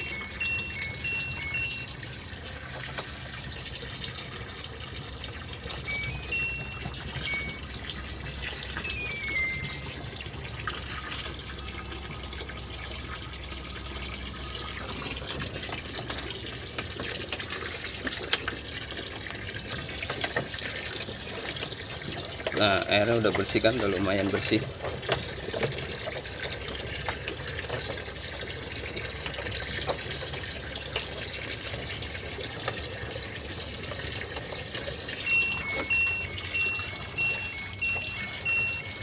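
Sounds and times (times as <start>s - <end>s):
short high tones: 0.0s - 2.3s, 5.7s - 11.0s, 35.1s - 39.0s
water pouring and splashing: 0.0s - 39.0s.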